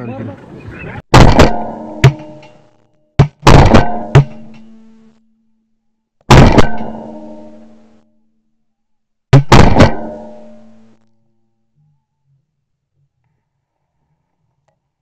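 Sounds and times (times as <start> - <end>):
shotgun blasts: 1.1 - 2.4, 3.2 - 4.7, 6.3 - 7.7, 9.4 - 10.8.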